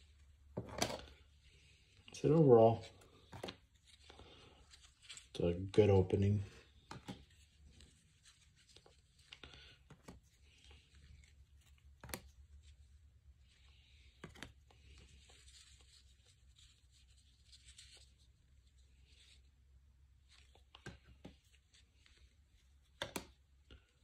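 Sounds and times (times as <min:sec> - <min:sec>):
trading cards rustling and clicking: 0:02.0 - 0:12.8, 0:13.5 - 0:18.2, 0:20.2 - 0:23.4.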